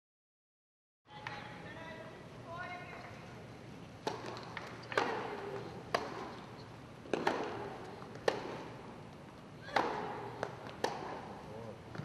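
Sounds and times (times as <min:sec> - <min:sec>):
tennis ball struck by racket: 0:04.0 - 0:06.5, 0:07.1 - 0:08.8, 0:09.7 - 0:11.4.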